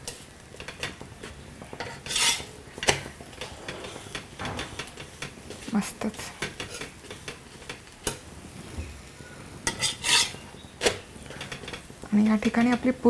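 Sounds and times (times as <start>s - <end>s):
faint sizzle: 0.0s - 13.0s
metal spatula knocking on iron: 4.4s - 5.4s.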